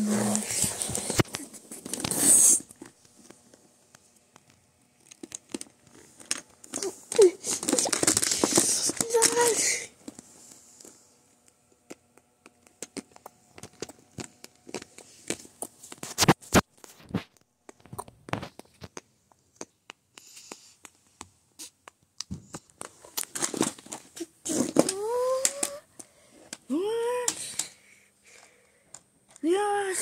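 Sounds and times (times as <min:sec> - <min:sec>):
clicks taps and scratches: 0:10.8 - 0:23.4.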